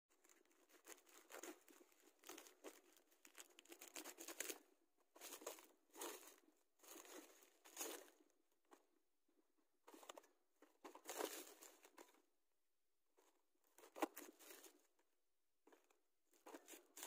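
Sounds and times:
plastic mailer crinkling: 0.1s - 4.6s, 10.9s - 12.0s.

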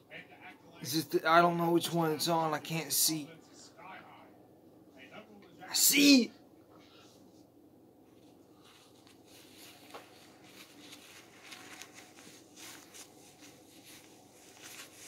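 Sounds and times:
faint cloth rustling: 7.0s - 15.0s.

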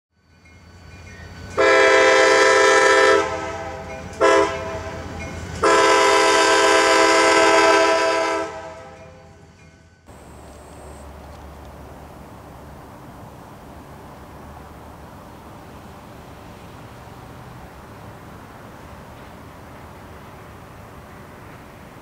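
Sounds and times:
locomotive air horn blasts: 1.6s - 9.2s.

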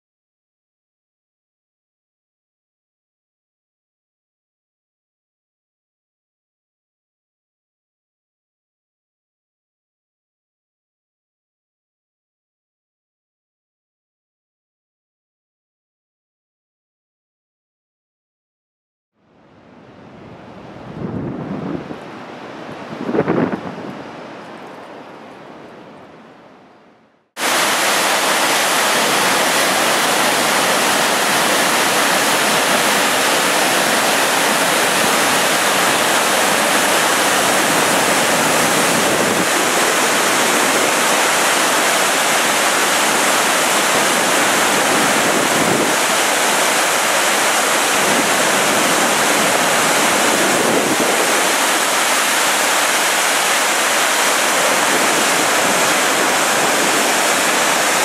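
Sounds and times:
waterfall roaring: 27.4s - 58.0s.

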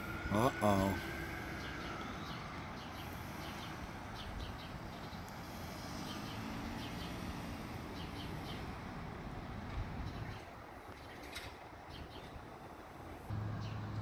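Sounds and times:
street traffic hum: 0.0s - 14.0s
small birds chirping: 0.3s - 9.0s, 9.9s - 12.5s.

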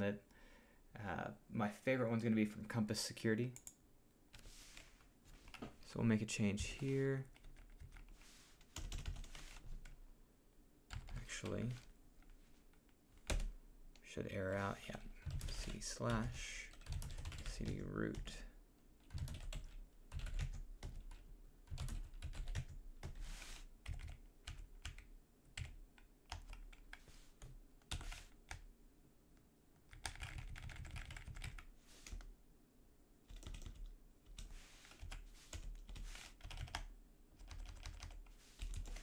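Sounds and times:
computer keyboard typing: 7.2s - 10.0s, 10.9s - 12.3s, 13.2s - 13.5s, 15.2s - 18.3s, 19.0s - 23.2s, 23.8s - 28.6s, 29.9s - 32.3s, 33.3s - 39.0s.

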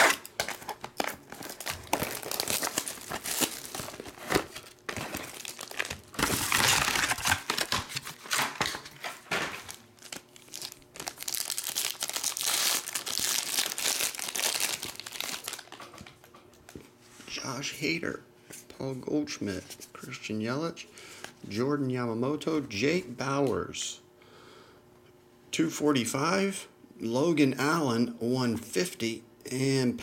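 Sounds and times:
foil wrapper tearing: 0.0s - 15.8s
plastic wrap crinkling and tearing: 0.0s - 16.0s.

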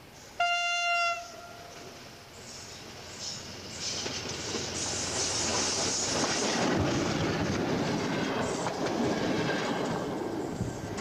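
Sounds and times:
train wheels clattering over joints: 3.1s - 11.0s.

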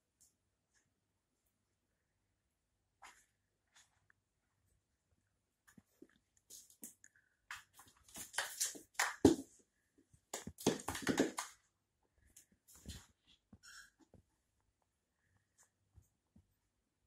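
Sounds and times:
cat paws scrabbling on floor: 10.3s - 11.6s, 12.7s - 13.4s.

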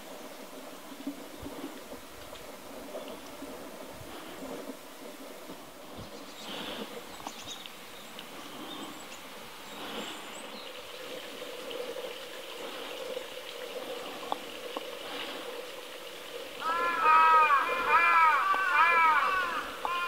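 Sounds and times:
outdoor background noise: 0.0s - 20.0s
small birds chirping: 5.9s - 15.5s.

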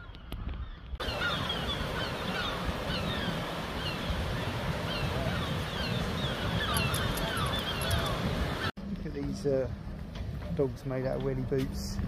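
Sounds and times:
birds calling: 0.0s - 8.7s.

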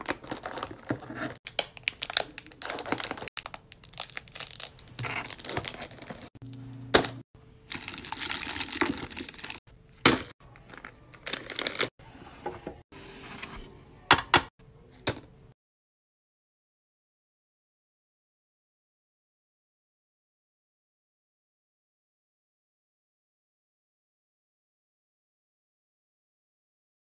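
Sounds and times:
plastic wrappers crinkling: 0.0s - 6.4s, 7.7s - 9.6s, 10.5s - 11.9s.

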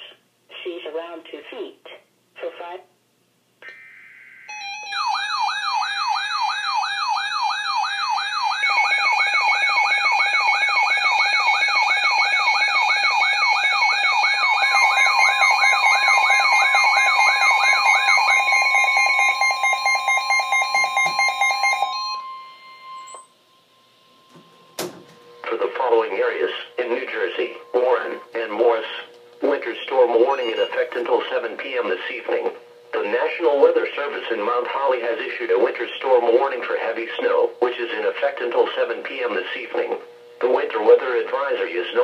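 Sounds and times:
warbling siren tone: 3.6s - 24.8s
steady single alarm tone: 3.6s - 29.5s
steady beeping tones: 3.6s - 35.4s.

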